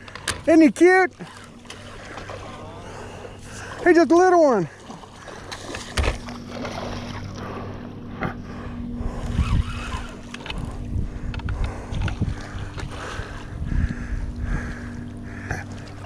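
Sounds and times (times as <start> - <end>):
steady low hum: 0.0 - 16.0
fish splashing: 4.7 - 7.6
wind on microphone: 8.8 - 15.6
fishing reel cranking: 9.2 - 12.2.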